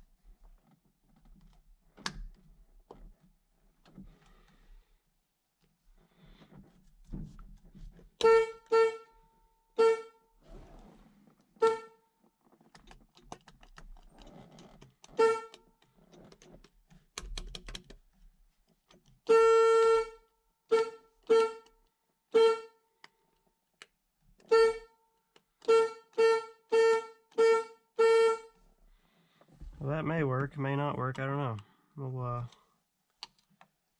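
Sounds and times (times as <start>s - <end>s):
car horn honks: 8.2s - 9.2s, 9.8s - 10.2s, 11.6s - 12.0s, 15.2s - 15.6s, 19.2s - 21.7s, 22.3s - 22.8s, 24.5s - 25.0s, 25.6s - 28.6s.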